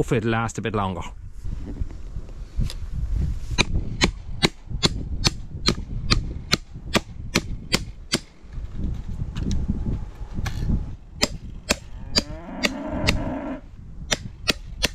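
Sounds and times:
hammer striking wooden post: 11.2s - 13.2s, 14.1s - 14.9s.

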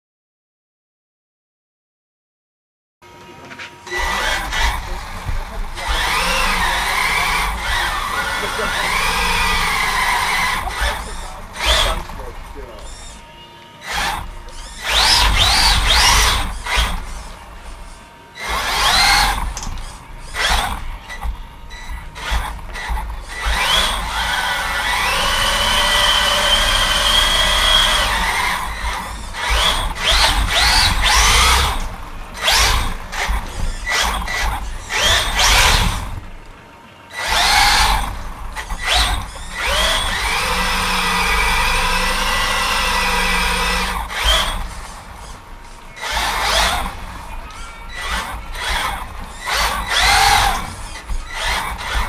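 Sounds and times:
electric motor whining: 3.0s - 52.0s
tyres squealing on floor: 3.2s - 52.0s.

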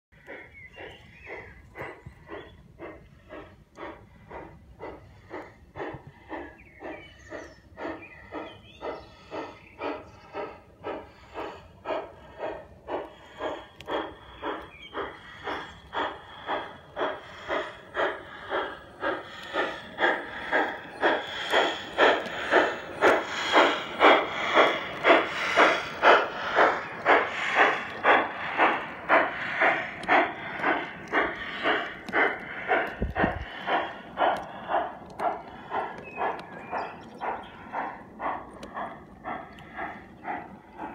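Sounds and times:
steam locomotive chuffing: 0.1s - 40.9s.

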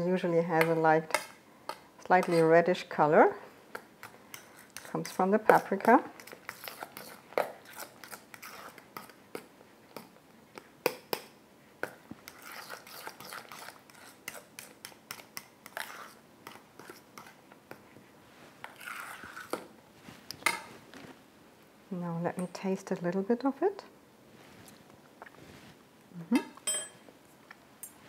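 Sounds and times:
metal utensil scraping metal bowl: 2.0s - 2.8s, 4.3s - 9.1s, 12.3s - 17.3s, 18.6s - 19.6s.

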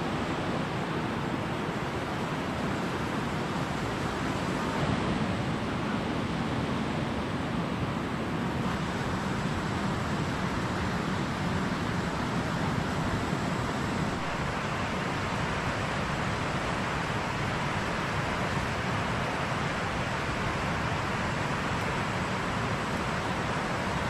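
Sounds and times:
flowing river water: 0.0s - 24.0s.

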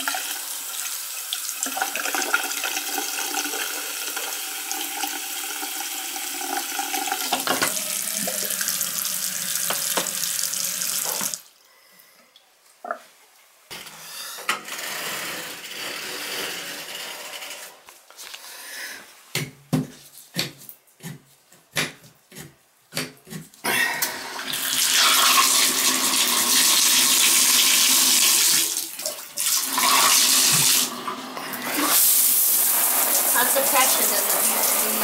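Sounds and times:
shower water running: 0.0s - 11.5s, 24.4s - 35.0s
water gushing into tub: 1.3s - 11.4s, 24.3s - 31.0s.

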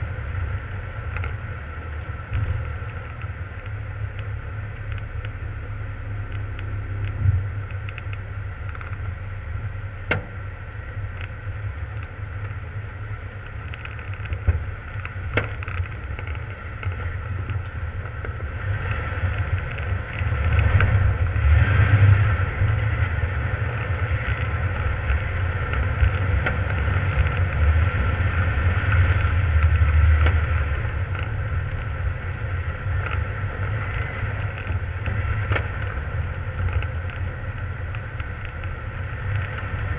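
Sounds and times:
vehicle engine rumbling: 0.0s - 39.9s.

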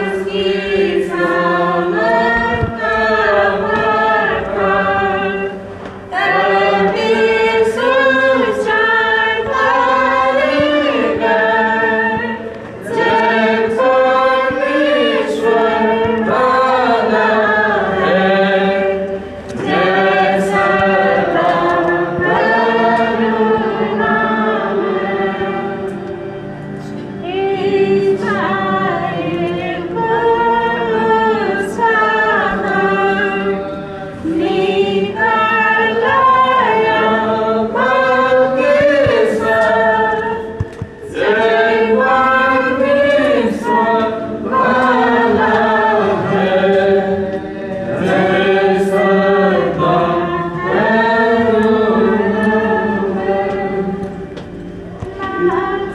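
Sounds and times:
group singing a hymn: 0.0s - 55.9s.

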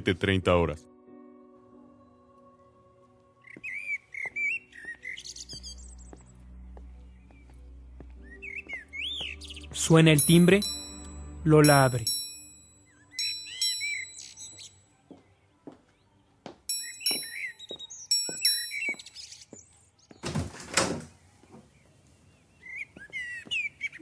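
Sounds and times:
birds chirping: 2.0s - 24.0s
footsteps walking: 3.5s - 9.7s, 14.4s - 20.2s, 22.9s - 23.7s
door opening: 20.2s - 21.2s.

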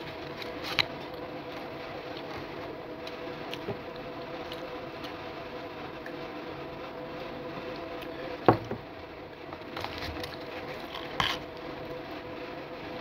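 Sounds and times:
faint steady hum: 0.0s - 13.0s
glass set down on table: 8.5s - 8.8s.

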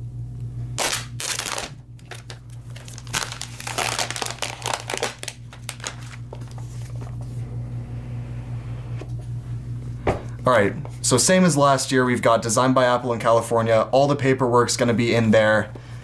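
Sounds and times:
plastic wrapping crinkling: 0.8s - 7.1s.

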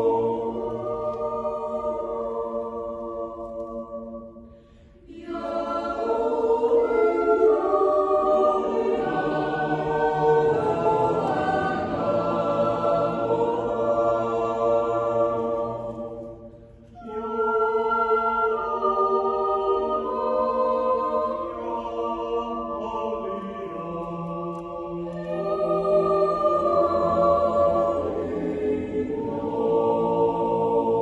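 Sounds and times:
choir yodeling a cappella: 0.0s - 31.0s.

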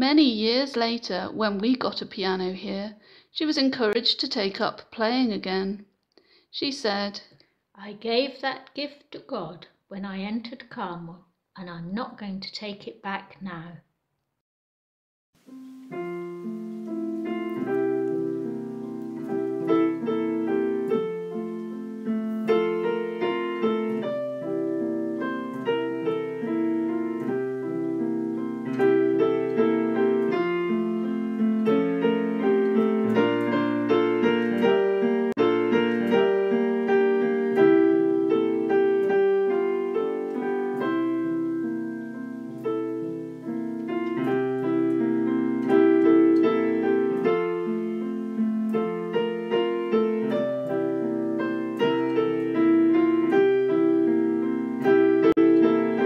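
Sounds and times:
piano music: 15.4s - 56.0s.

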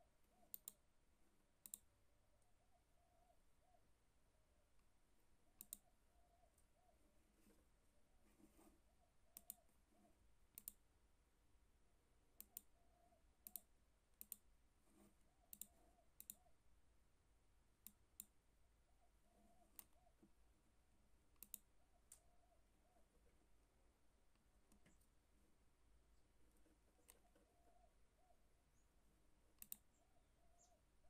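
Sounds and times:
computer mouse button clicks: 9.4s - 9.6s, 21.4s - 21.6s.

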